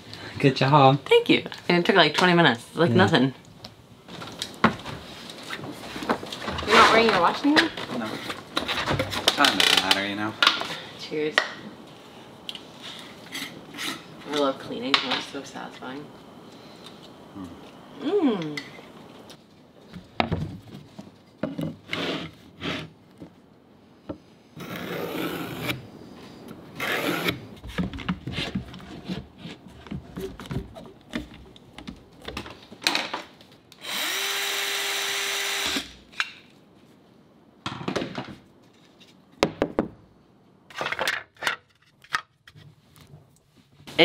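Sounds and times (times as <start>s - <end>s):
knocks and scrapes of plywood: 27.0s - 32.6s
cordless power tool running: 33.8s - 35.9s.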